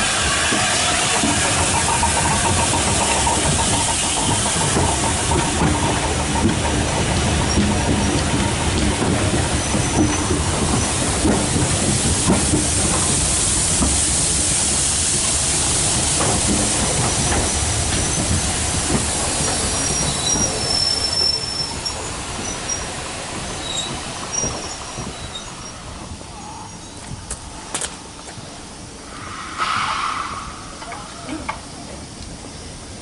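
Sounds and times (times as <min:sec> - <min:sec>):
train wheels rolling on rails: 0:00.0 - 0:33.0
high squeals: 0:29.0 - 0:31.8.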